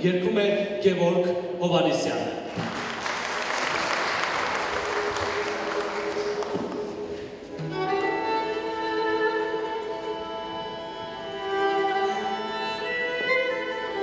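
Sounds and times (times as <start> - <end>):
applause: 2.6 - 7.0
bowed fiddles playing long notes: 3.6 - 14.0.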